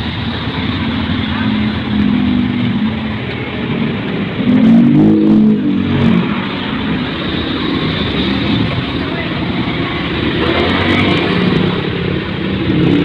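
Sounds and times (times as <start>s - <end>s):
street traffic: 0.0s - 13.0s.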